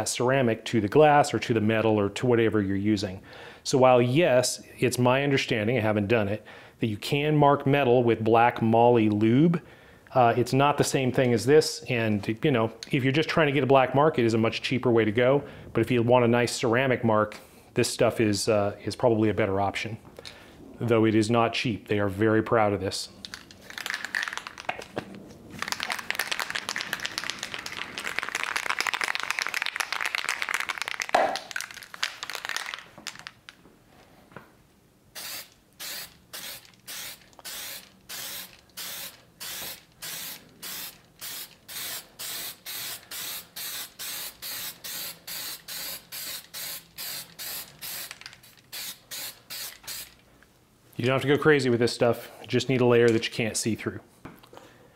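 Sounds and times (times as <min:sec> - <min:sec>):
aerosol can spraying hiss: 0:35.2 - 0:50.2
short spray bursts: 0:35.2 - 0:50.2.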